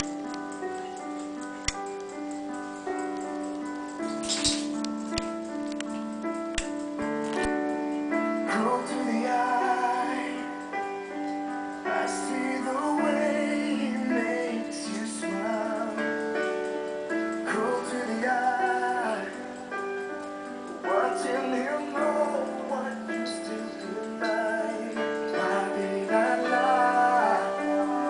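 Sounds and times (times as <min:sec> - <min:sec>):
piano chords: 0:00.0 - 0:28.0
person singing: 0:08.4 - 0:10.8, 0:11.8 - 0:16.5, 0:17.4 - 0:19.8, 0:20.7 - 0:28.0.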